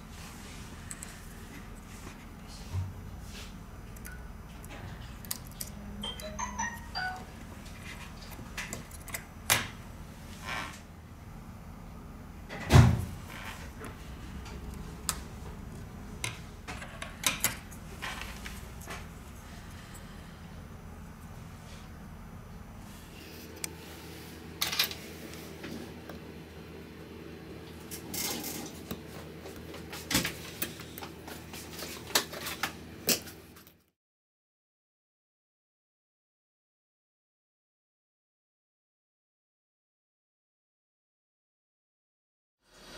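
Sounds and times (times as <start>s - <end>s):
steady electrical hum: 0.0s - 33.8s.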